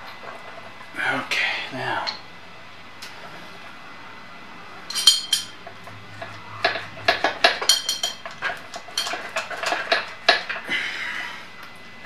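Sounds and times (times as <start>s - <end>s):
metal clinking and knocking: 4.9s - 10.6s
sharp clicks and knocks: 4.9s - 10.6s.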